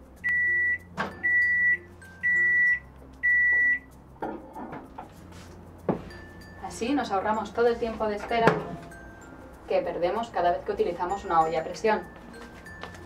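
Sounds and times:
microwave oven beeping: 0.2 - 3.9.

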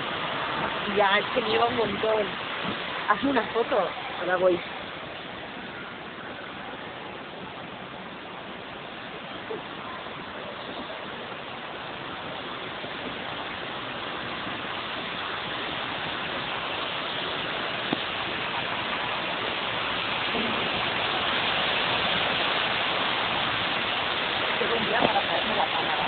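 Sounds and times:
traffic hiss on wet street: 0.0 - 26.0.

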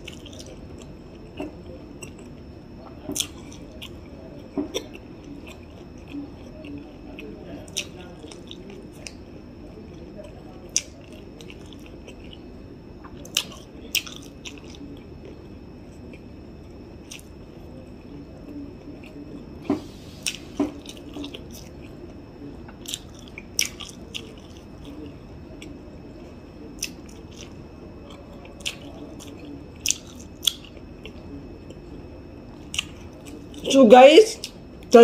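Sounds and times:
person chewing: 0.0 - 9.2, 9.9 - 22.1, 22.7 - 25.8, 26.8 - 33.6.

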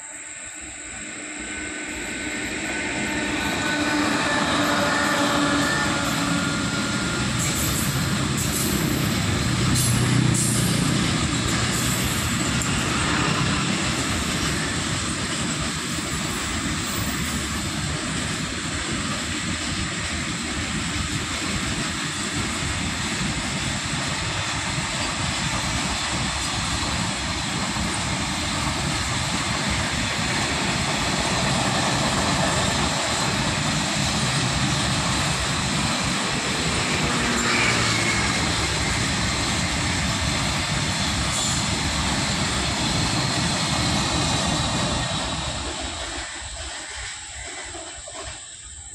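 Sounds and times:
freight train wheels rumbling and clattering: 1.5 - 48.9.

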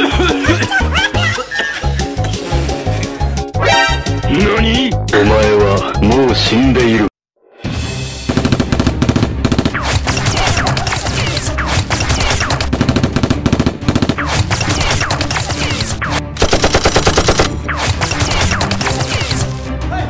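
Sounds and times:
automatic gunfire bursts: 11.9 - 19.4.

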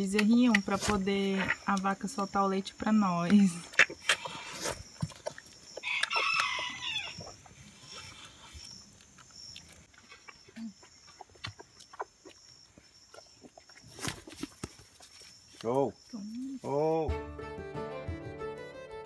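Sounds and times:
calf suckling: 3.4 - 15.3
farm animal calling: 3.5 - 13.8.

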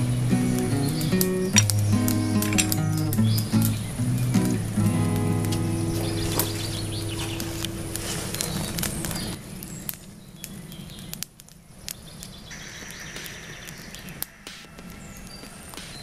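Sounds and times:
campfire crackling: 0.0 - 16.0
sticks snapping: 0.4 - 3.8, 5.2 - 12.4.

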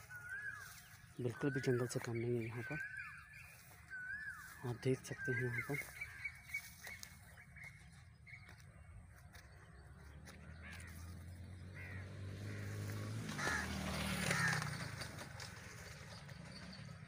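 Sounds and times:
crows cawing: 0.0 - 7.1, 10.3 - 15.7
rustle of brush and leaves: 0.0 - 16.9.

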